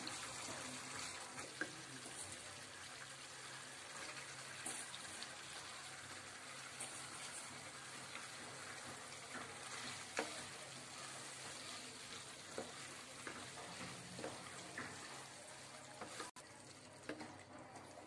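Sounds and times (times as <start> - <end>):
food sizzling in a frying pan: 0.0 - 18.0
wooden spoon scraping a pan: 4.0 - 5.3, 6.6 - 16.4.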